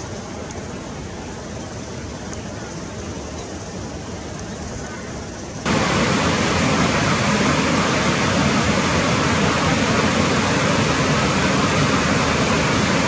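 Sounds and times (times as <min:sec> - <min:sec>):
loud rushing noise: 0:05.7 - 0:13.0.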